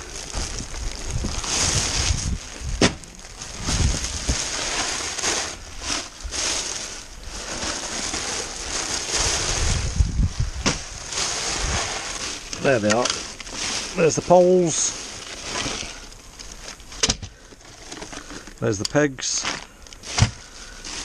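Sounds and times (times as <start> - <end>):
plastic bags rustling: 0.0 - 21.0.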